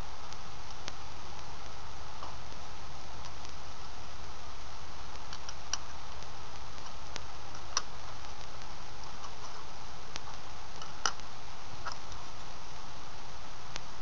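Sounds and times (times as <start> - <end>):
low hum: 0.0 - 14.0
steady hiss: 0.0 - 14.0
sharp plastic clicks: 10.2 - 12.2.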